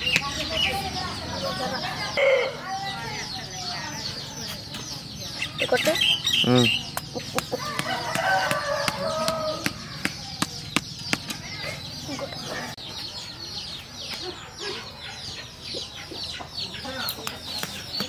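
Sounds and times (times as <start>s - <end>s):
chicks peeping: 0.0s - 18.0s.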